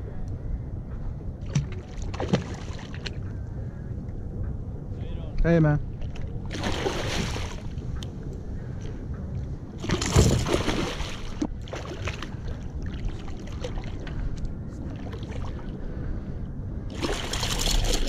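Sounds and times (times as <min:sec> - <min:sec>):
fish thrashing and splashing: 0:16.9 - 0:18.0.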